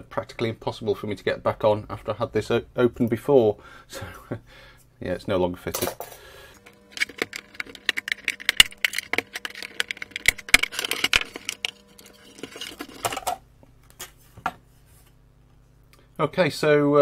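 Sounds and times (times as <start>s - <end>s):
plastic parts clicking and knocking: 5.8s - 13.4s.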